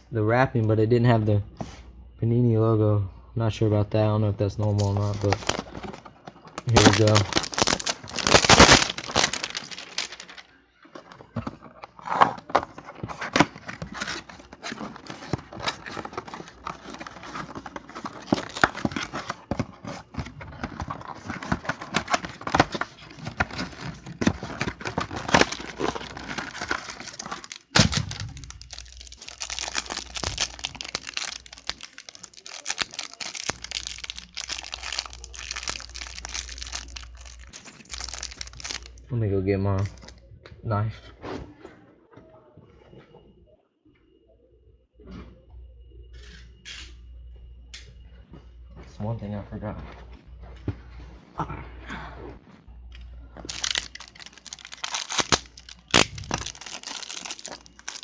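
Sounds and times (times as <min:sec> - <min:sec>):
plastic wrapping crinkling: 0:04.6 - 0:10.6, 0:13.0 - 0:39.0, 0:39.8 - 0:40.1, 0:53.4 - 0:58.0.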